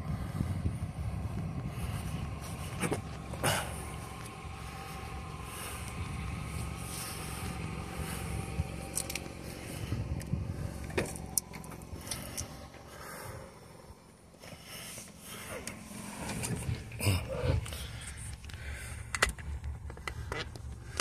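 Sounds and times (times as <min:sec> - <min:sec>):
low rumble: 0:00.0 - 0:21.0
sharp clicks and knocks: 0:18.4 - 0:21.0.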